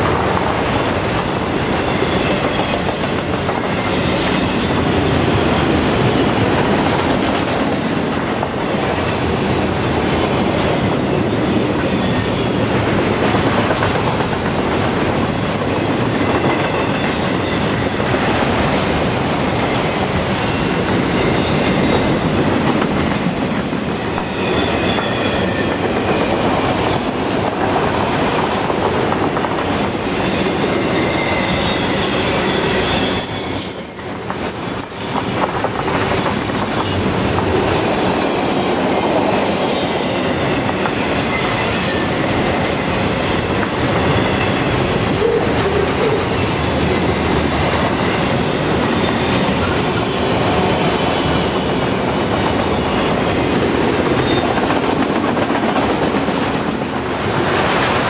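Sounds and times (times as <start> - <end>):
train wheels rumbling on rail: 0.0 - 58.0
high-pitched wheel squeal: 24.0 - 26.5, 30.1 - 34.0.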